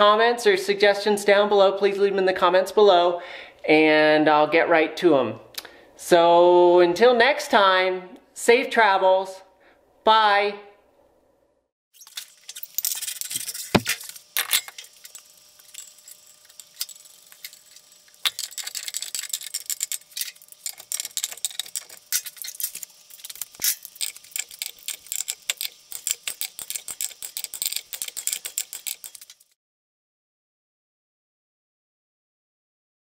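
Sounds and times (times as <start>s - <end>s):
ratchet wrench clicking: 12.8s - 29.6s.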